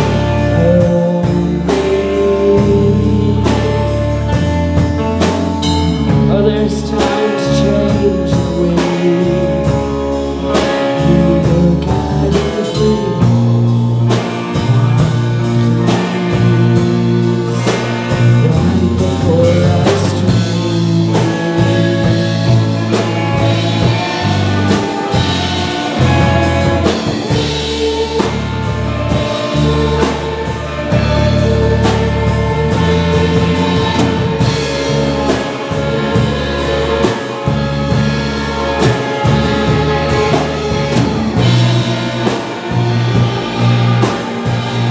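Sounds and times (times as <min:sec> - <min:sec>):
bass guitar: 0:00.0 - 0:44.9
distorted electric guitars: 0:00.0 - 0:44.9
drum kit: 0:00.0 - 0:44.9
woman singing: 0:00.2 - 0:04.5, 0:05.7 - 0:13.7, 0:15.5 - 0:37.9.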